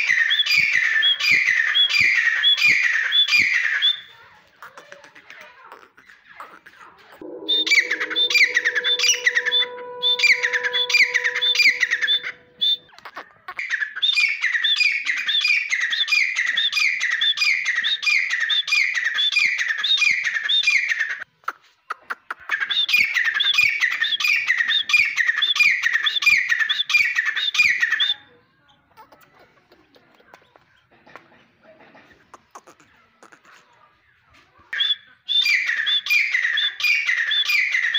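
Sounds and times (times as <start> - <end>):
bird calling ringing notes: 7.2 - 12.8.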